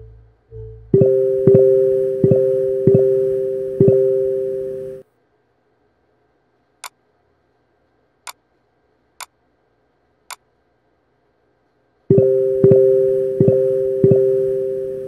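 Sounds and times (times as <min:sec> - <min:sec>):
piano chord pulsing: 0:00.0 - 0:05.0, 0:12.1 - 0:15.0.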